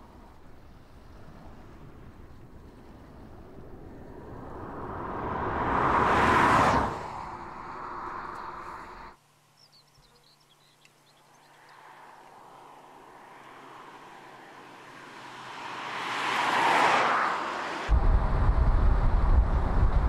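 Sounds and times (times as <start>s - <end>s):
quiet outdoor background: 0.0s - 20.0s
car driving past at speed: 1.5s - 9.2s, 12.9s - 20.0s.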